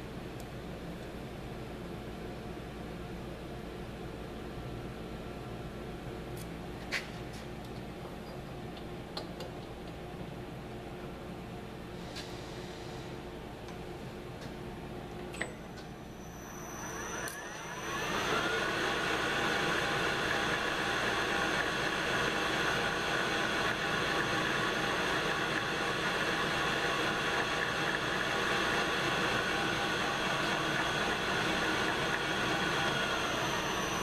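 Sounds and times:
lathe motor whining: 16.0s - 34.0s.

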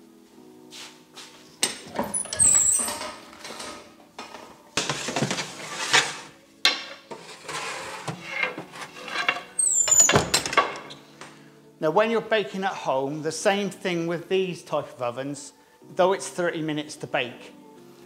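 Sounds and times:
oven iron doors clanking: 1.6s - 10.9s
high metallic squeal: 2.0s - 3.8s, 7.4s - 11.0s
metal baking tray sliding: 2.0s - 6.4s, 7.0s - 10.1s.

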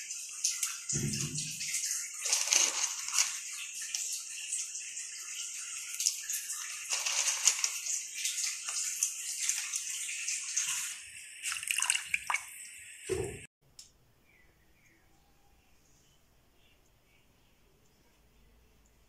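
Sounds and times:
water heating with bubbles crackling: 0.0s - 13.5s.

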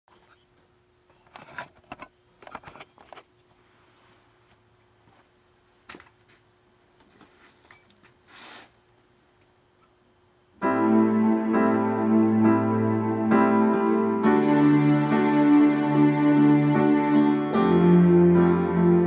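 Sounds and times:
faint steady hum: 0.1s - 19.0s.

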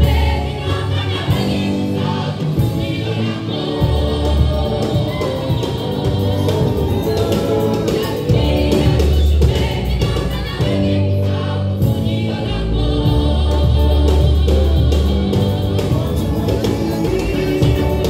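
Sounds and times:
bass guitar notes: 0.0s - 18.0s
drums: 0.0s - 18.0s
gospel choir singing: 0.0s - 18.0s.

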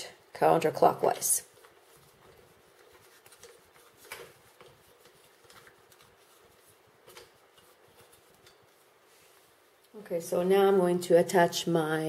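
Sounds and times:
soft plastic clicks and rubs: 1.4s - 10.0s.

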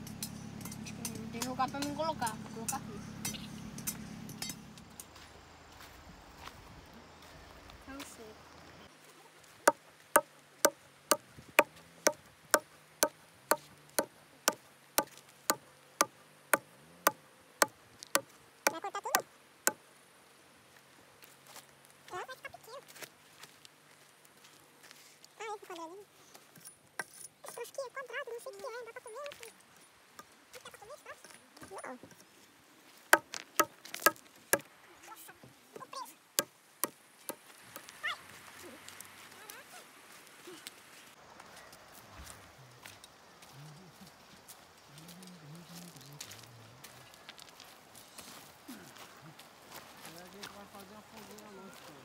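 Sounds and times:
hatchet chopping wood: 11.1s - 12.7s, 13.5s - 15.1s, 18.2s - 19.8s, 33.2s - 34.7s, 36.4s - 37.9s.

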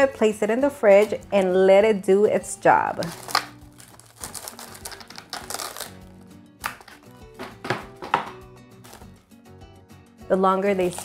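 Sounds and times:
soft background music: 0.0s - 11.0s
cling wrap rustling and tearing: 3.0s - 6.2s, 10.8s - 11.0s.

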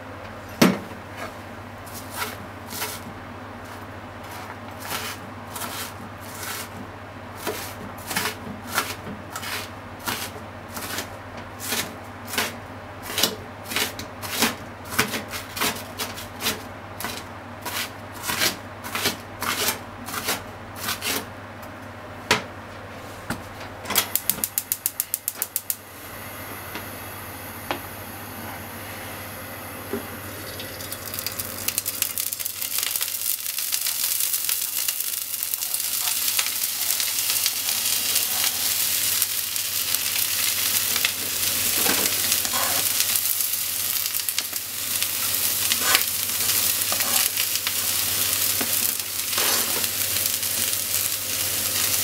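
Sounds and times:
oil popping in frying pan: 24.2s - 25.8s, 30.5s - 52.0s.

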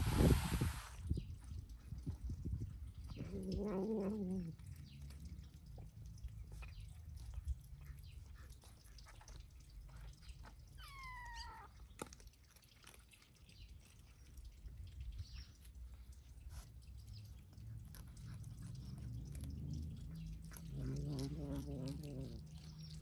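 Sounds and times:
kitten mewing: 10.8s - 11.7s, 20.6s - 22.6s.

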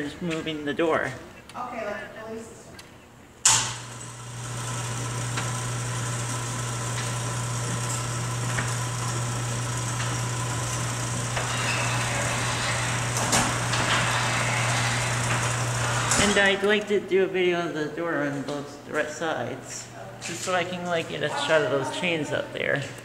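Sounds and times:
garage door motor clunk: 3.4s - 16.8s
garage door motor humming: 3.4s - 17.0s.

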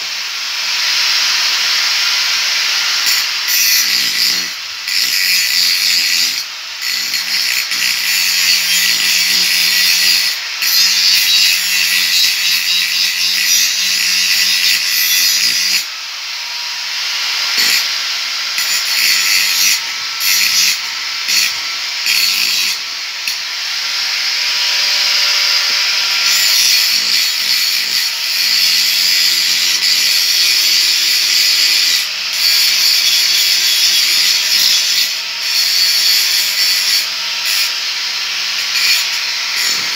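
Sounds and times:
angle grinder grinding metal: 0.0s - 39.9s.

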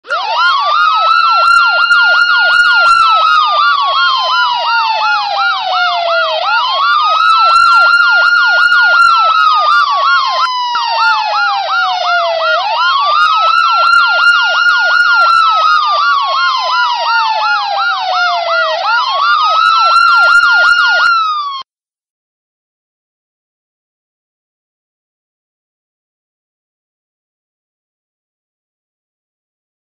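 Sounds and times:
electronic siren wailing and yelping: 0.0s - 21.6s.

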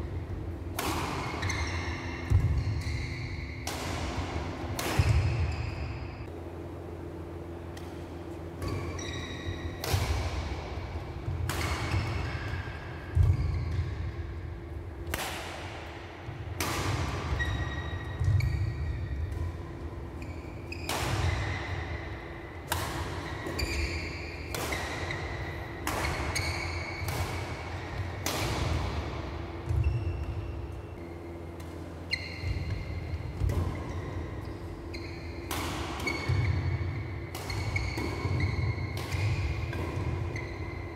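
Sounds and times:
racket hitting shuttlecock: 0.1s - 6.4s, 7.6s - 40.9s.

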